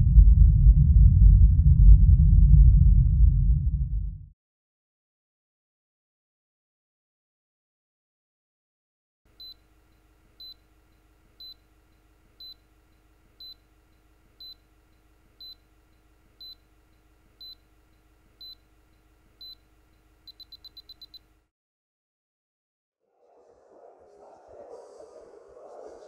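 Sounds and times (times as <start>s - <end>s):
faint hum: 0.0s - 4.3s, 9.3s - 21.5s, 23.1s - 26.0s
high-pitched electronic beeps: 20.3s - 21.2s.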